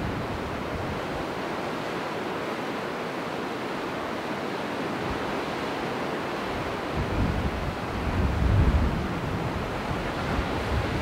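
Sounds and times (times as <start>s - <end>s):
small waves washing on beach: 0.0s - 11.0s
wind buffeting microphone: 6.5s - 11.0s.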